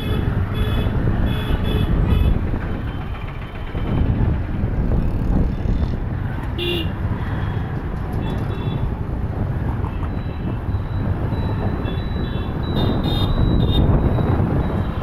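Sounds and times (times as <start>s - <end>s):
traffic engines rumbling: 0.0s - 15.0s
vehicle horn beeps: 6.6s - 6.9s, 11.8s - 13.9s.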